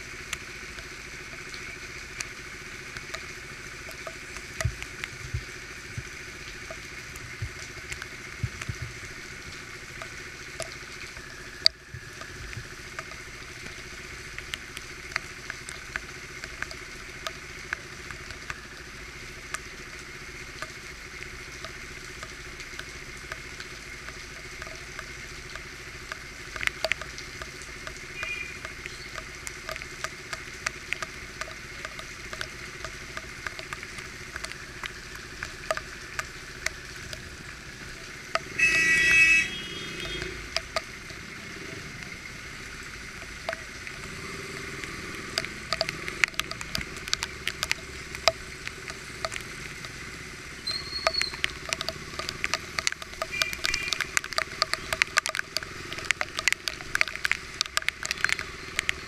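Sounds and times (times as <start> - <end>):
motorcycle engine running low: 0.0 - 59.0
rain pattering: 0.0 - 59.0
raindrops ticking on camera housing: 0.0 - 59.0
loud tonal horn blast: 38.5 - 40.4.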